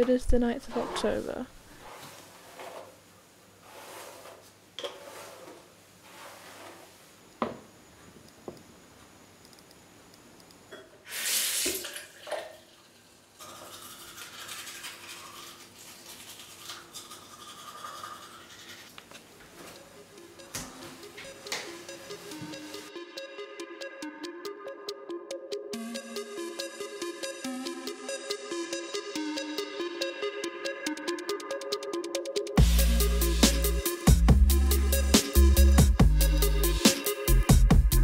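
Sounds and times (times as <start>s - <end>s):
toothbrush scrubbing teeth: 13.4s - 19.0s.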